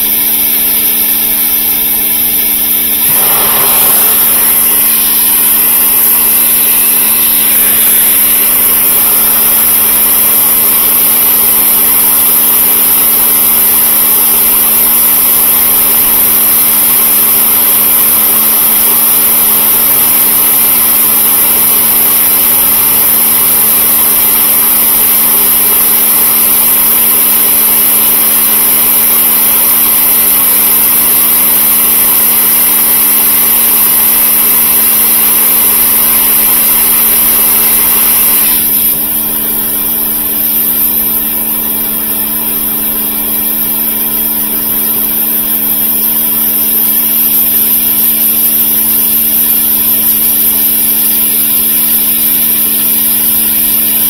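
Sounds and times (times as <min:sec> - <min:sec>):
pressure washer motor hum: 0:00.0 - 0:54.0
water spray hissing: 0:02.9 - 0:08.8.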